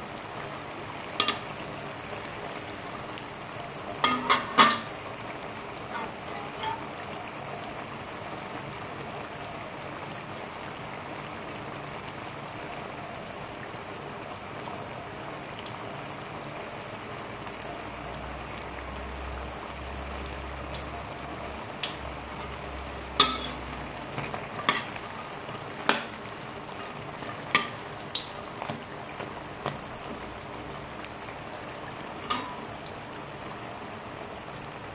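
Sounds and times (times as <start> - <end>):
fritters sizzling in oil: 0.0 - 34.9
metal ladle clinking on wok: 23.2 - 23.6.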